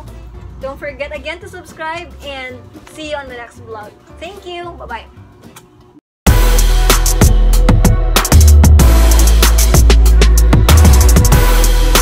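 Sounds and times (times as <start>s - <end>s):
deep bass: 6.3s - 12.0s
electronic music: 6.3s - 12.0s
fast drum beat: 6.3s - 12.0s.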